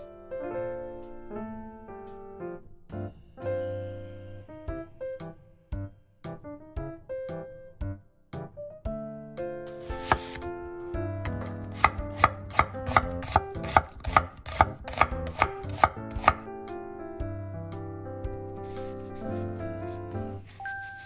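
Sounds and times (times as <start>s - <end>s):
knife slicing onion on board: 9.8s - 10.4s, 11.3s - 16.5s.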